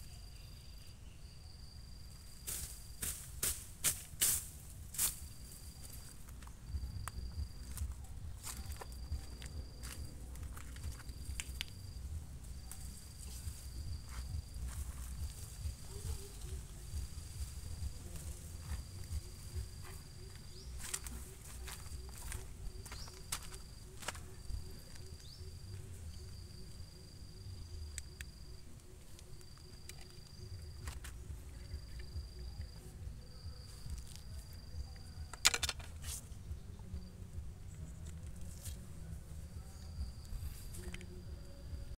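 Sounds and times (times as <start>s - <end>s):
rustles and knocks of weeds pulled: 2.2s - 25.8s
constant low rumble: 3.1s - 41.9s
insect trilling: 4.2s - 41.9s.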